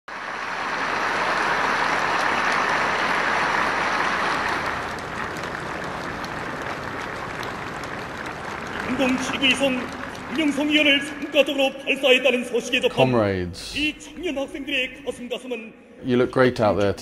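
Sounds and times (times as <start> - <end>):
crowd applauding: 0.1 - 13.1.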